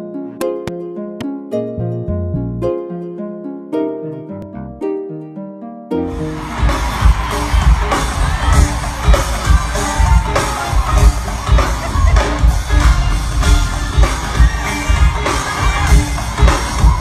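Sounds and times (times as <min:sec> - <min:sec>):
crowd noise: 0:06.0 - 0:17.0
loud live music with bass beat: 0:06.2 - 0:17.0.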